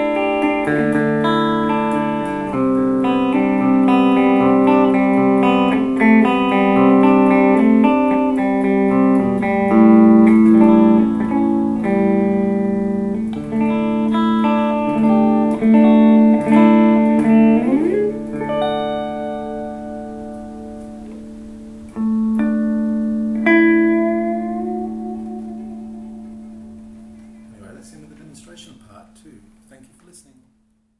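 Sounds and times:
clean electric guitar playing: 0.0s - 29.7s.

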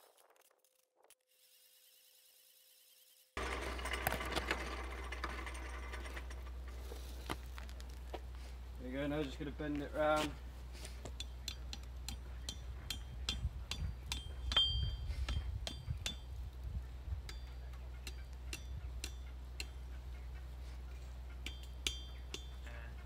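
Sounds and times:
hammer striking steel on anvil: 11.1s - 16.3s, 17.2s - 19.9s, 21.4s - 22.7s.

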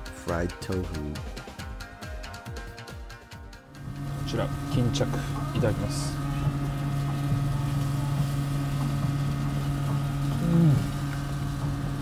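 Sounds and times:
low machine hum: 3.8s - 12.0s
person humming while chewing: 10.2s - 11.3s.

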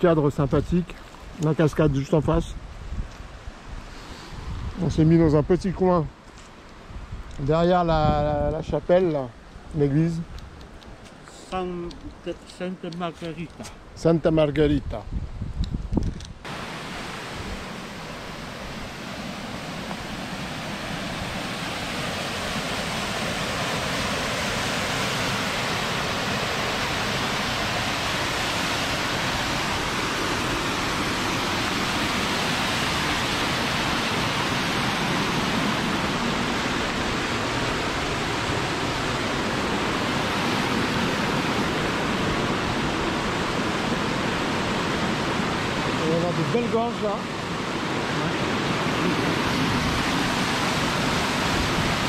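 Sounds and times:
waterfall rushing: 16.5s - 52.0s.

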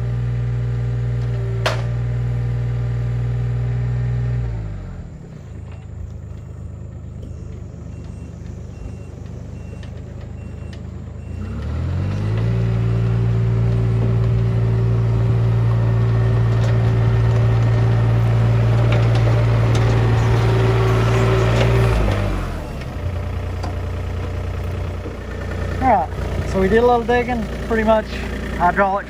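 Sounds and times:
excavator diesel engine revving: 0.0s - 29.0s
faint beeping: 5.2s - 11.6s.

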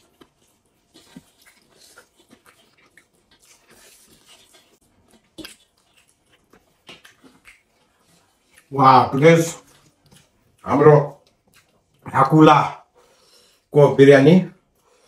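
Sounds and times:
soft chewing: 0.0s - 13.7s.

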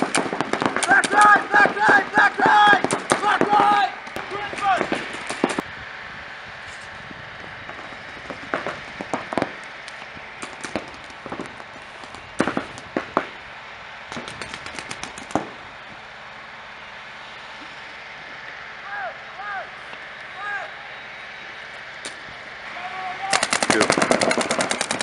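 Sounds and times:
paintball markers firing: 0.0s - 5.6s, 14.1s - 15.5s, 23.3s - 25.0s.

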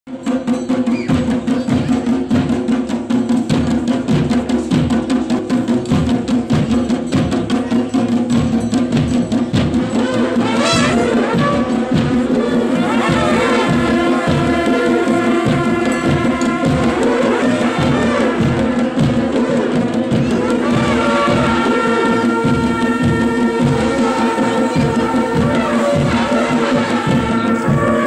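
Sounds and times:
drums beating fast rhythm: 0.1s - 28.0s
brass horns blowing: 9.8s - 28.0s.

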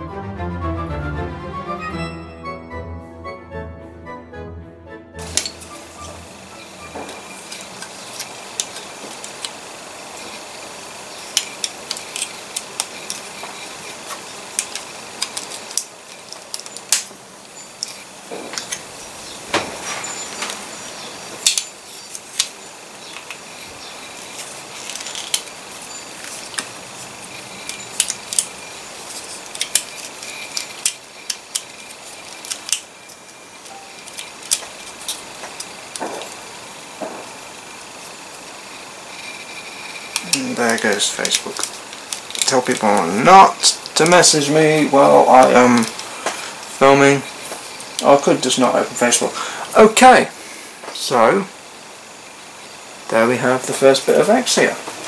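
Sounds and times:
steady background hiss: 5.2s - 55.0s
plastic parts clicking and snapping: 6.9s - 9.6s, 11.2s - 17.2s, 17.8s - 18.9s, 21.3s - 23.4s, 24.3s - 25.5s, 27.6s - 32.9s, 33.6s - 36.4s, 40.1s - 44.3s.

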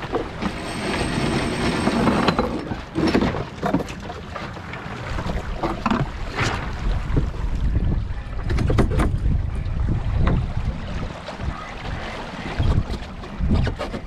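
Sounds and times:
water along a hull: 0.0s - 14.0s
wind on microphone: 5.2s - 14.0s.

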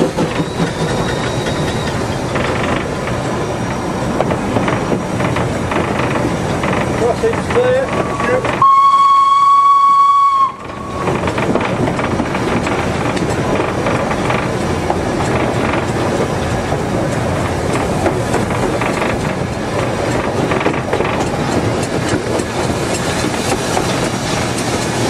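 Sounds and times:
train running on rails: 0.0s - 25.0s
train whistle: 8.6s - 11.0s.

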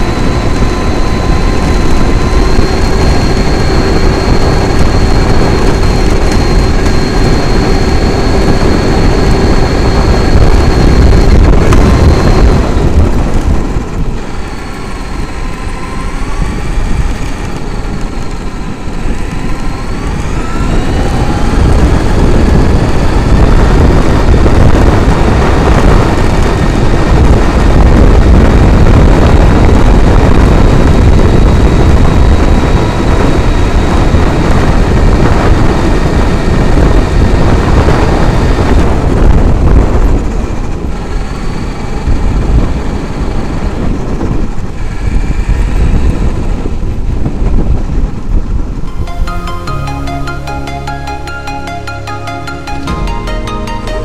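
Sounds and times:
electric motor whining: 0.0s - 25.8s
wind buffeting microphone: 0.0s - 48.9s.

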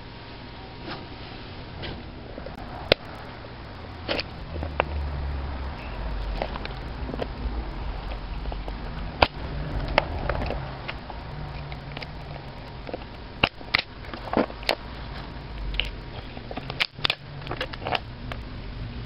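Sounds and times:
pliers crunching metal casing: 15.5s - 18.4s.

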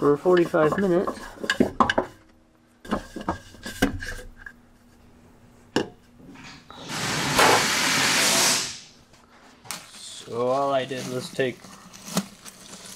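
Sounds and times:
oil filter scraping and knocking: 0.0s - 4.6s
steady rushing hiss: 6.8s - 9.0s.

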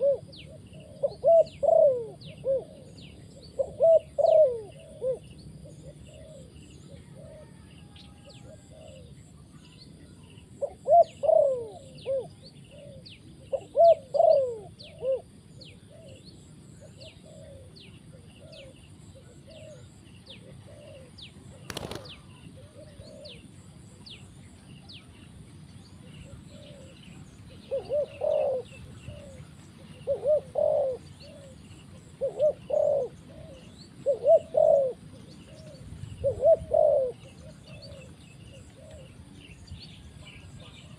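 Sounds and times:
dove cooing: 0.0s - 9.5s, 10.5s - 24.2s, 25.9s - 40.9s
small birds chirping: 8.4s - 40.9s.

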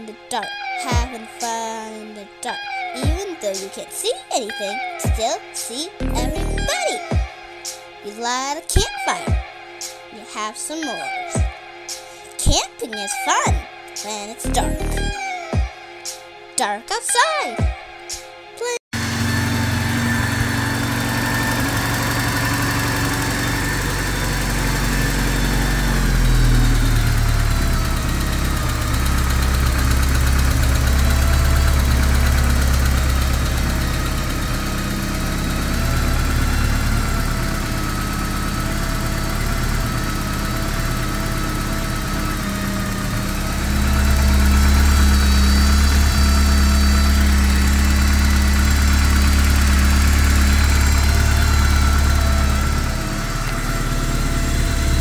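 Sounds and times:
car engine idling: 19.0s - 55.0s.

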